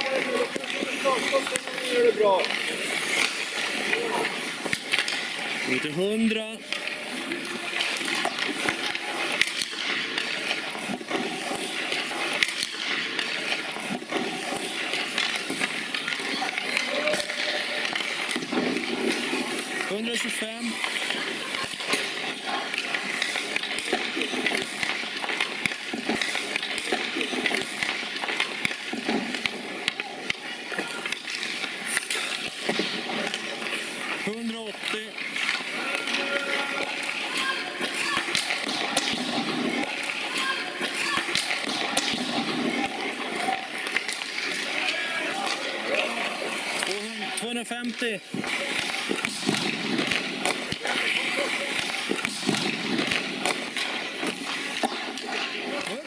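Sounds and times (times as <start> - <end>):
skates scraping on ice: 0.0 - 56.0
sticks clacking on pucks: 0.0 - 56.0
children's voices: 35.8 - 38.6, 39.8 - 41.6.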